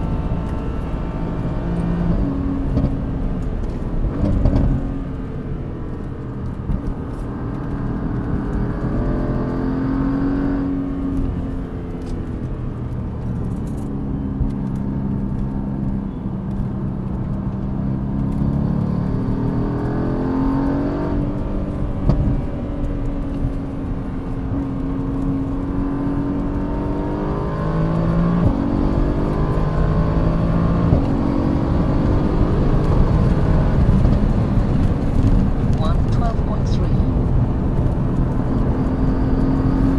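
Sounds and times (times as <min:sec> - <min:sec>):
car engine accelerating and upshifting: 0:00.0 - 0:39.9
tyre and wind noise: 0:00.0 - 0:39.9.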